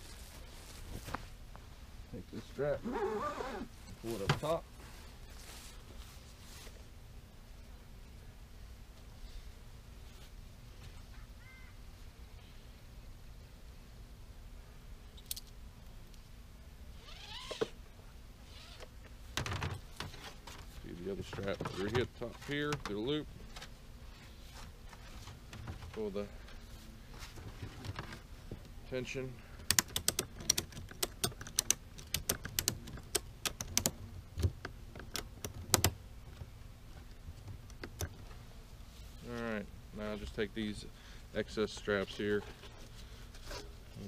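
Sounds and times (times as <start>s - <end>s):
ratchet strap clicking: 29.6s - 34.0s.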